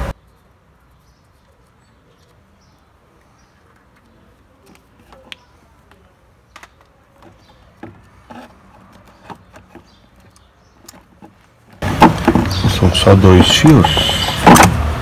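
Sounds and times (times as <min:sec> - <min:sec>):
clicks and knocks of plastic housing: 0:06.6 - 0:14.8.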